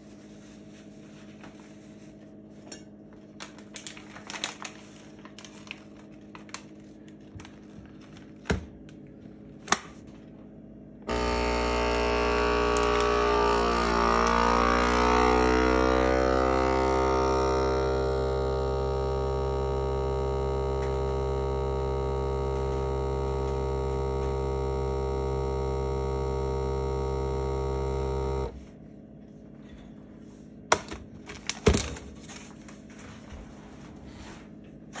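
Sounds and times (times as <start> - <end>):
vacuum pump humming: 2.8 - 29.8.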